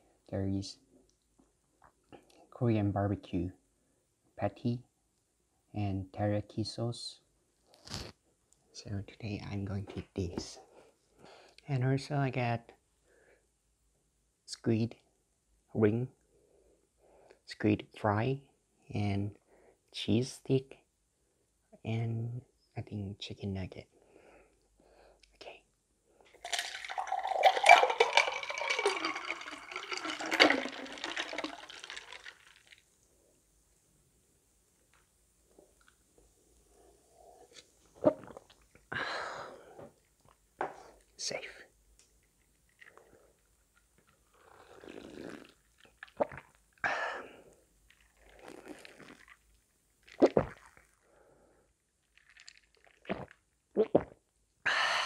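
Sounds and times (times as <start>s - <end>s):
person sipping and gulping drink: 7.8s - 8.2s, 26.3s - 32.8s, 35.5s - 41.2s, 42.4s - 54.2s
cola splashing and fizzing: 26.4s - 33.0s, 42.3s - 46.9s, 47.5s - 51.1s, 51.9s - 53.6s.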